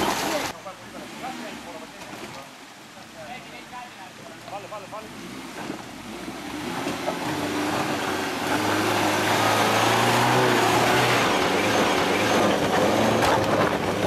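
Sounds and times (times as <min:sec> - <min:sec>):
engine pulling under load: 0:05.2 - 0:14.0.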